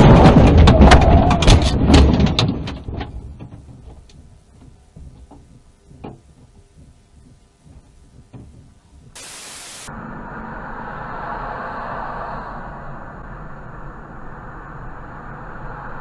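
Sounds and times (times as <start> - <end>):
faint clicks and knocks: 2.2 - 9.2
static hiss burst: 9.2 - 9.9.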